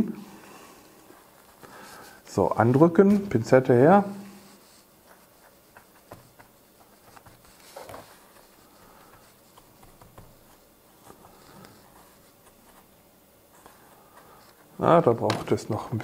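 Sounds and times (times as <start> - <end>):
faint taps and rustles: 5.2 - 12.9, 15.2 - 16.0.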